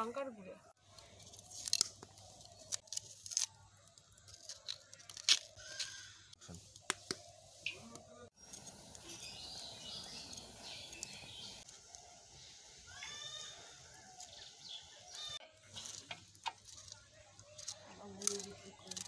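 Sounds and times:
birds chirping and calling: 0:04.0 - 0:19.0.

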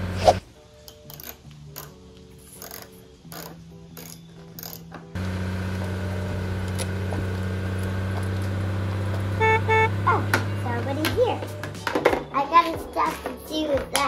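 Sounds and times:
faint background music: 0:00.0 - 0:05.2, 0:09.7 - 0:14.0
ratchet wrench clicking: 0:00.9 - 0:05.0
low mechanical drone with rattle: 0:04.5 - 0:11.2.

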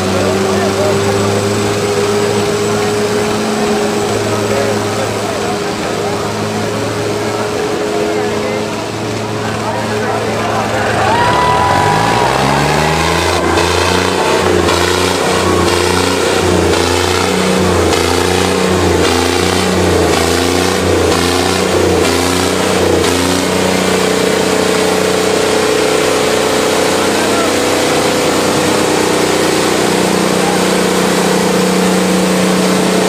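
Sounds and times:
tractor engine revving: 0:00.0 - 0:33.0.

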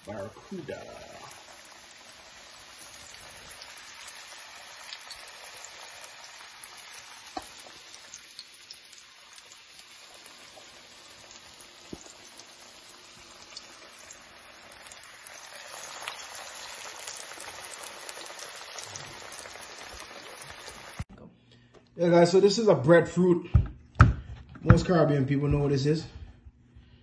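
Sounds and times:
fish deep-frying in hot oil: 0:00.0 - 0:21.0
oil crackling and popping: 0:00.0 - 0:21.1.

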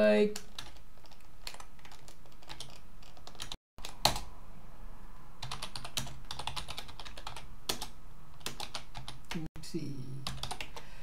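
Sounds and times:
computer keyboard typing: 0:00.3 - 0:04.3, 0:05.4 - 0:09.5, 0:10.2 - 0:10.8.

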